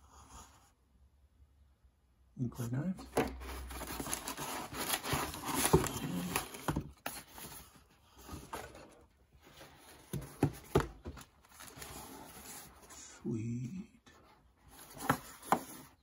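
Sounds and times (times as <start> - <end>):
paper and cardboard rustling: 3.0 - 13.2, 14.2 - 16.0
cardboard box knocking on wood: 10.0 - 11.2.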